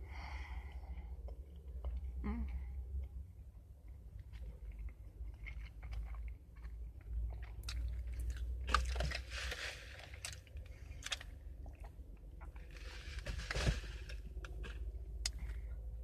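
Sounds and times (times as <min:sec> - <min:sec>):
breathing: 0:00.0 - 0:01.3
person chewing: 0:04.2 - 0:13.0.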